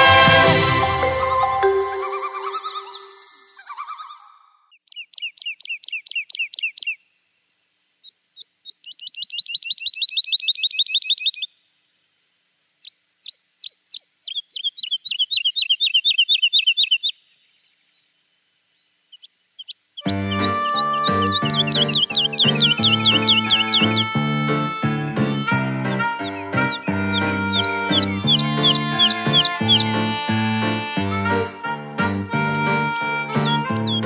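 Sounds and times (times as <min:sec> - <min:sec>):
songbird trilling: 0:01.7 - 0:07.0, 0:08.0 - 0:11.5, 0:12.8 - 0:17.2, 0:19.1 - 0:30.1, 0:32.6 - 0:34.0.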